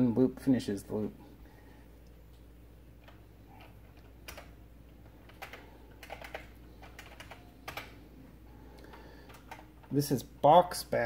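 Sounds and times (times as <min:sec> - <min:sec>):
low steady hum: 0:00.0 - 0:11.0
faint keyboard typing: 0:02.0 - 0:08.0, 0:08.7 - 0:10.0.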